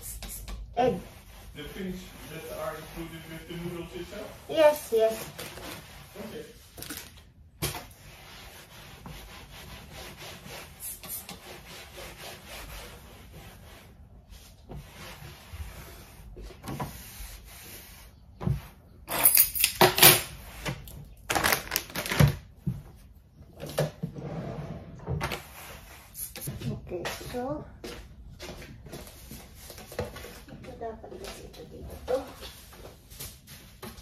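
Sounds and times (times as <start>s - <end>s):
cloth scraping over surfaces: 0.8s - 6.8s, 24.1s - 26.5s.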